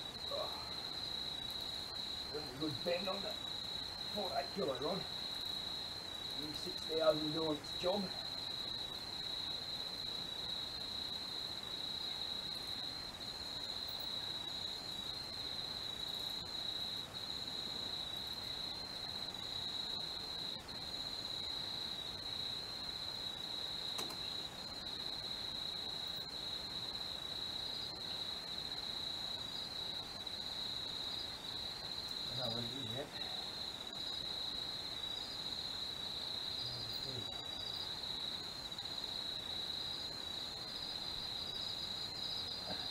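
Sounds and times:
crickets trilling: 0.0 - 42.9
sharp click: 24.0 - 24.3.

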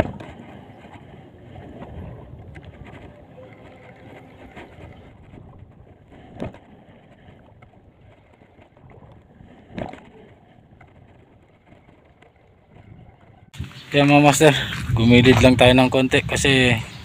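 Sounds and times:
sea water lapping: 0.0 - 13.6
wind noise: 0.0 - 17.0.

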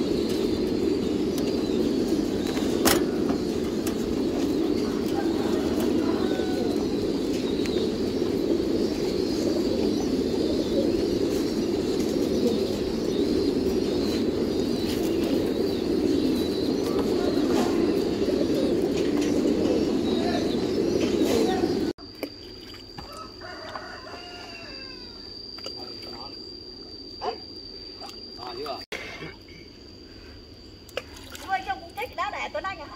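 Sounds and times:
pigeons cooing: 0.0 - 21.9.

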